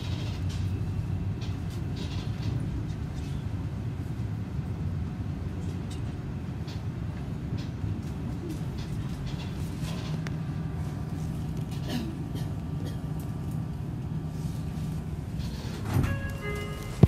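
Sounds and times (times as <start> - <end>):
electric train humming: 0.0 - 17.0
electronic chime: 16.0 - 17.0.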